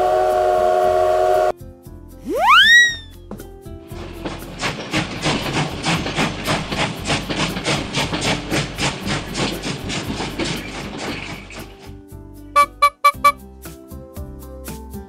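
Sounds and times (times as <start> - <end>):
steam locomotive chuffing: 3.8 - 12.0.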